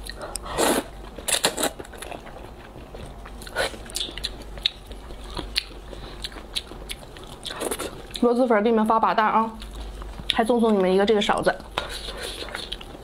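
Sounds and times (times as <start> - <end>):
wet chewing with mouth clicks: 0.0 - 8.4, 9.6 - 13.0
person slurping noodles: 0.5 - 1.7.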